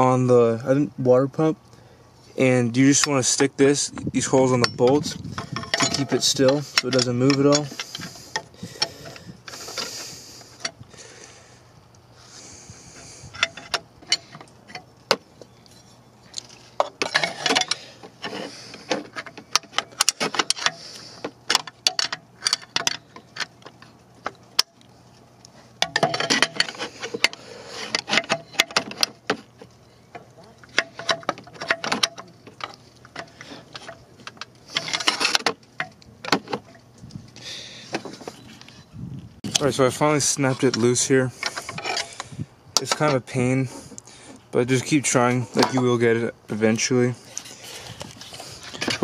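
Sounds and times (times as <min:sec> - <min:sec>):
steel wrenches clinking and rattling: 0:04.2 - 0:10.8, 0:13.0 - 0:24.8, 0:25.8 - 0:36.8, 0:39.5 - 0:44.0, 0:46.9 - 0:49.0.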